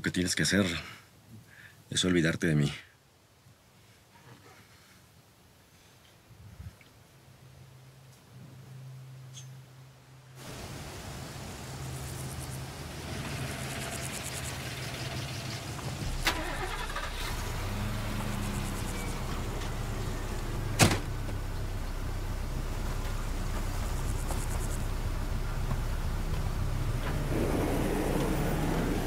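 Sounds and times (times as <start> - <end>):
car engine running: 12.1 - 29.0
sharp knocks: 20.8 - 21.1.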